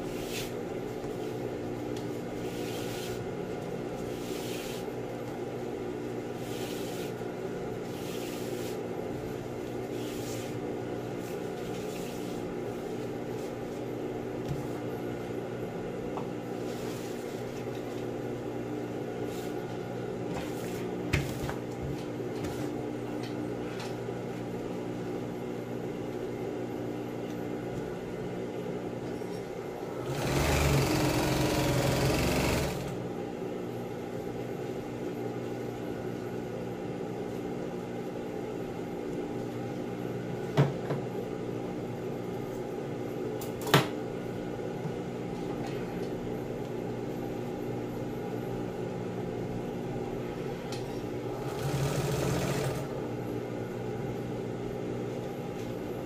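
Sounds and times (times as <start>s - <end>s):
steady hum: 0.0s - 51.8s, 52.6s - 56.0s
sewing machine stitching: 30.0s - 33.0s, 51.4s - 52.9s.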